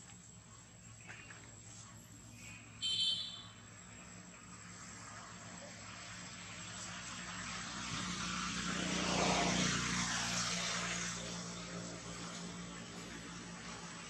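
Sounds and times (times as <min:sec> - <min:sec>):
engine passing by: 0:03.5 - 0:14.0.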